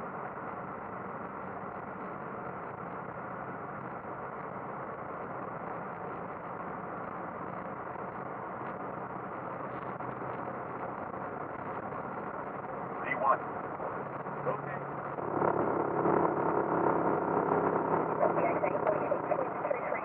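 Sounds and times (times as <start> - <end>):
aircraft engine and airflow rushing: 0.0 - 20.0.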